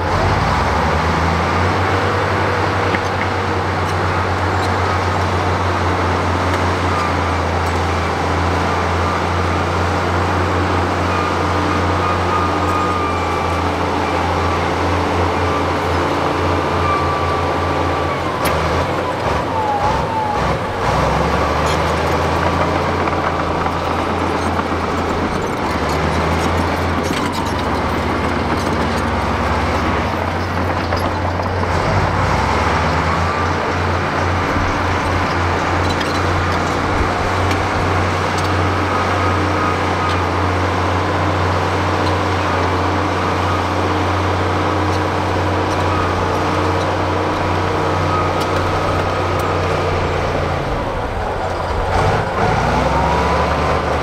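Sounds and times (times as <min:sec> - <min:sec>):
bulldozer diesel engine droning: 0:00.0 - 0:54.0
faint squeals: 0:10.1 - 0:54.0.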